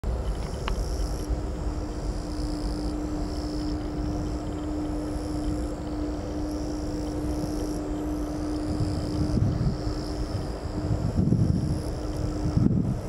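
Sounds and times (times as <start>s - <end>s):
distant jet airliner rumble: 0.0s - 13.0s
steady humming tone: 0.0s - 13.0s.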